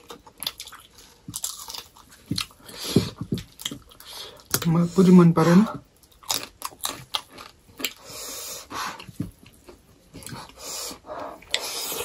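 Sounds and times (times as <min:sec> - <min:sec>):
people chewing food: 0:00.0 - 0:12.0.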